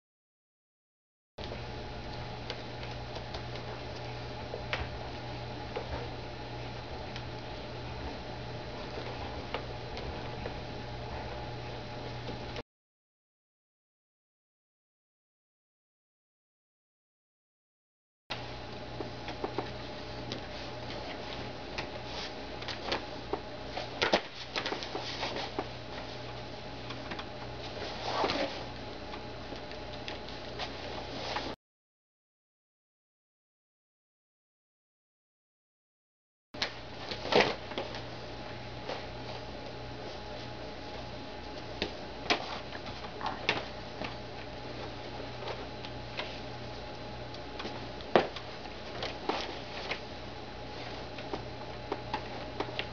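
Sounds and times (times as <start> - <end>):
low hum: 1.4 - 12.6
steady low hum: 1.4 - 12.6, 18.3 - 31.6, 36.6 - 52.9.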